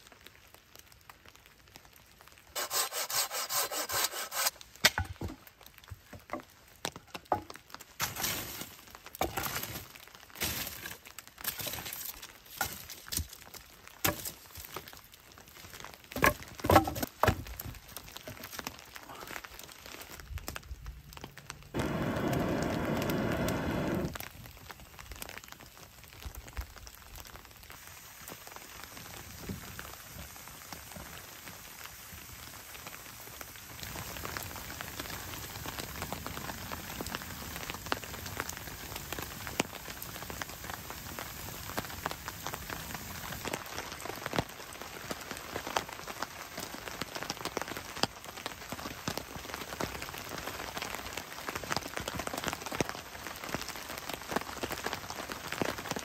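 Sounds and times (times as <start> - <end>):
rain falling: 0.0 - 2.6, 4.5 - 56.0
loud steady sound: 21.8 - 24.1.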